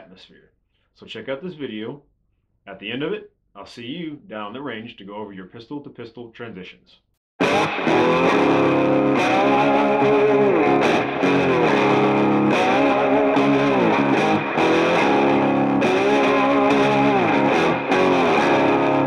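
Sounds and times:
distorted electric guitar chords: 0:07.4 - 0:19.0.

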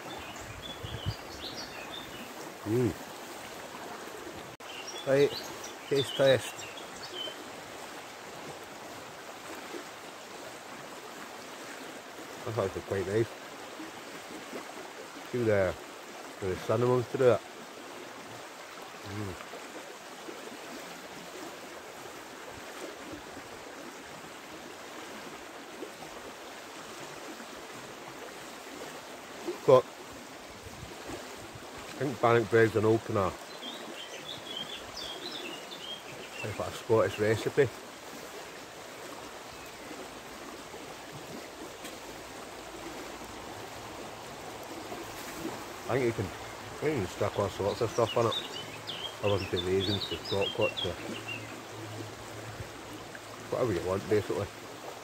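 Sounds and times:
river running over stones: 0:00.0 - 0:55.0.

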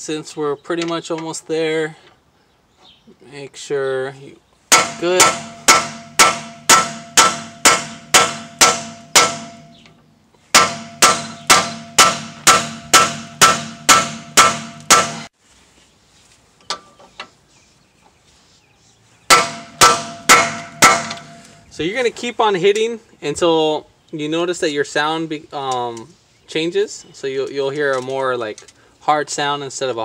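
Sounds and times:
hammer striking metal: 0:04.7 - 0:09.9, 0:10.5 - 0:15.3, 0:19.3 - 0:21.6.

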